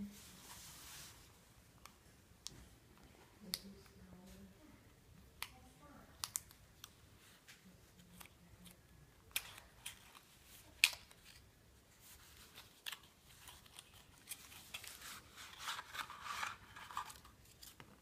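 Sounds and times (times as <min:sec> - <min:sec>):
cardboard and cards rustling: 0:07.2 - 0:18.0.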